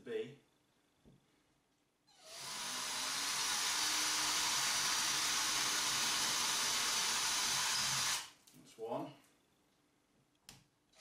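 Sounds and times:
power drill boring into ceiling: 0:02.1 - 0:08.3.

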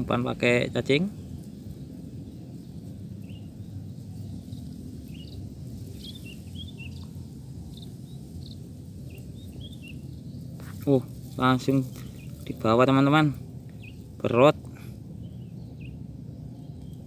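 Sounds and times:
low background rumble: 0:00.0 - 0:17.0
high bird chirps: 0:02.2 - 0:12.9, 0:13.7 - 0:14.1.

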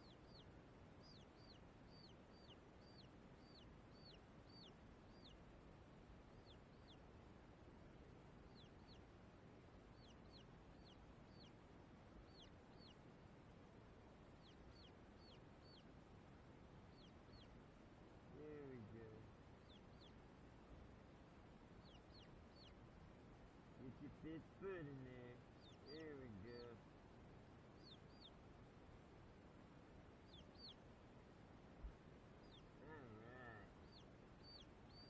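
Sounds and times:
chicks peeping: 0:00.0 - 0:05.4, 0:06.3 - 0:07.0, 0:08.4 - 0:09.1, 0:09.8 - 0:13.0, 0:14.2 - 0:15.9, 0:16.8 - 0:17.6, 0:18.3 - 0:20.3, 0:21.6 - 0:22.9, 0:23.8 - 0:26.8, 0:27.8 - 0:28.4, 0:30.1 - 0:30.8, 0:32.3 - 0:35.0.

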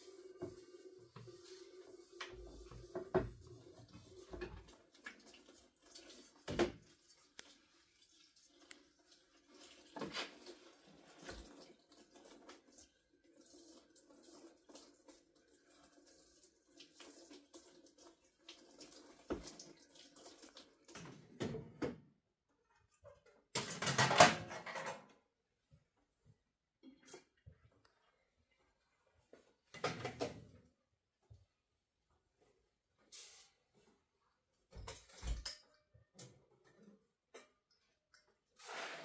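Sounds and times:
tap running into sink: 0:02.2 - 0:04.8, 0:19.3 - 0:19.6.

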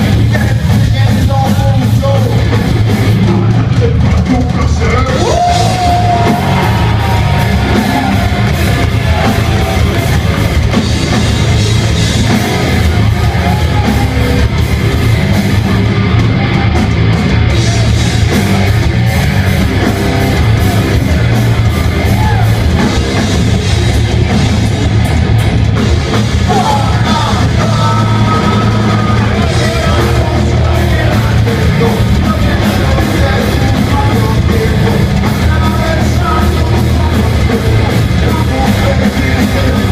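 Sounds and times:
heavy metal band playing: 0:00.0 - 0:39.9
person singing and shouting: 0:26.4 - 0:39.9.

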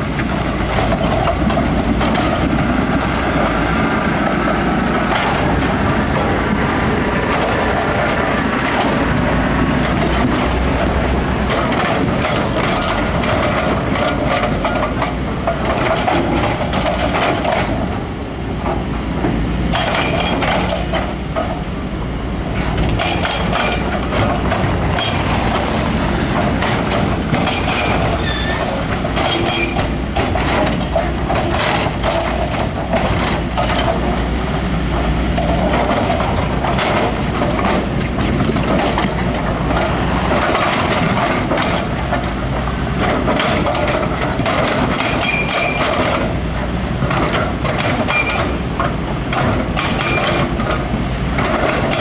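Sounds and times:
diesel engine rumble: 0:00.0 - 0:52.0
metallic clanking: 0:22.5 - 0:52.0.

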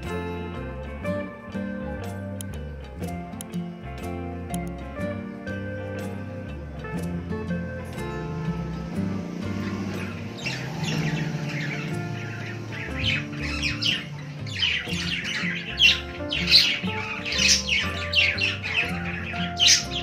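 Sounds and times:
soft background music: 0:00.0 - 0:20.0
budgerigars chirping and squawking: 0:08.8 - 0:20.0.

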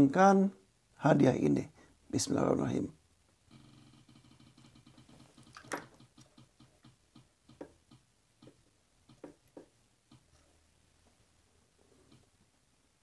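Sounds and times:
spinning wheel ticking: 0:03.5 - 0:09.3.

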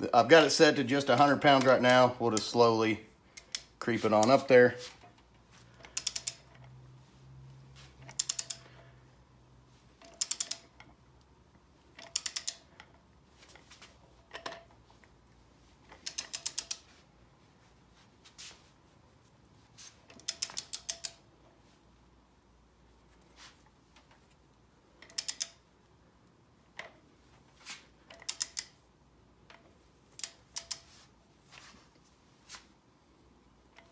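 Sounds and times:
heavy wrench click: 0:03.4 - 0:04.4, 0:05.7 - 0:06.7, 0:08.0 - 0:08.8, 0:10.0 - 0:10.9, 0:11.9 - 0:13.0, 0:15.9 - 0:16.9, 0:20.1 - 0:21.2, 0:25.0 - 0:25.6, 0:28.1 - 0:28.8, 0:29.5 - 0:30.9
torque wrench ratchet clicks: 0:05.8 - 0:06.6, 0:08.1 - 0:08.7, 0:10.0 - 0:10.8, 0:12.0 - 0:12.7, 0:16.0 - 0:16.8, 0:20.2 - 0:21.2, 0:25.0 - 0:25.6, 0:28.1 - 0:28.7.

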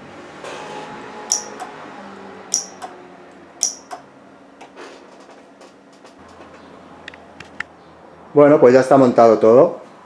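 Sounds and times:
solenoid clicks: 0:01.3 - 0:01.8, 0:02.5 - 0:03.0, 0:03.6 - 0:04.1.

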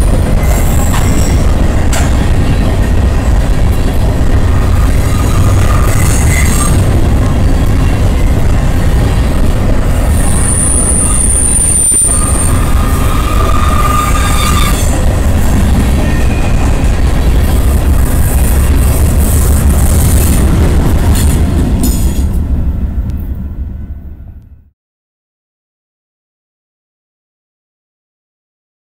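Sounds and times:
train wheels rumbling on rail: 0:00.0 - 0:24.7
high-pitched wheel squeals: 0:04.7 - 0:06.9, 0:10.1 - 0:15.1.

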